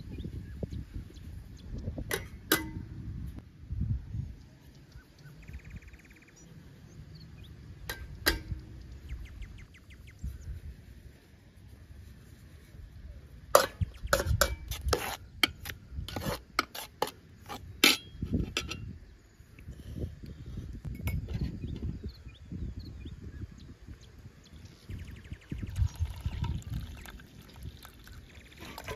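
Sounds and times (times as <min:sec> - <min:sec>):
metal pots clinking: 0:02.1 - 0:02.9, 0:07.8 - 0:08.8, 0:13.5 - 0:14.7.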